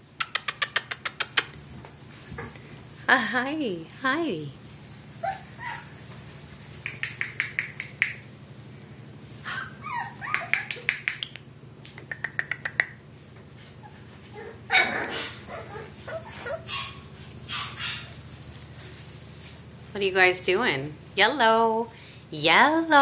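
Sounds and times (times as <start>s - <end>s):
steady low hum: 0.0s - 23.0s
puppies yapping and barking: 4.8s - 11.3s, 12.0s - 19.5s.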